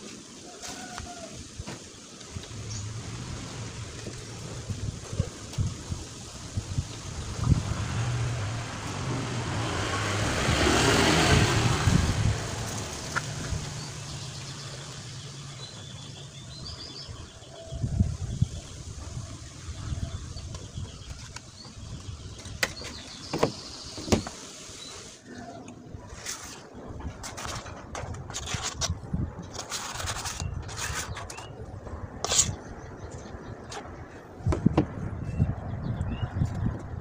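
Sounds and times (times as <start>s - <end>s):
birds chirping: 0.4s - 25.9s, 29.9s - 37.0s
motor vehicle passing by: 2.4s - 5.4s, 6.3s - 17.1s.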